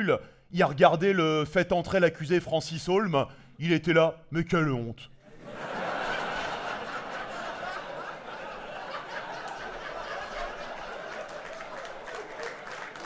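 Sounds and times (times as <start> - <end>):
audience laughing: 5.3 - 13.0.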